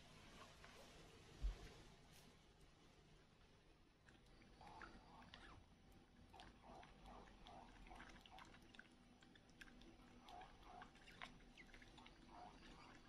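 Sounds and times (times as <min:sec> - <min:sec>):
baby monkey sucking from bottle: 0:06.3 - 0:13.0.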